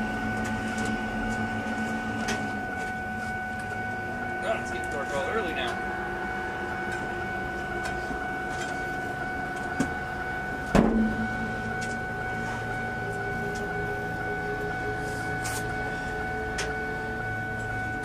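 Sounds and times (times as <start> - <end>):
lower steady hum: 0.0 - 18.0
steady mechanical hum: 0.0 - 18.0.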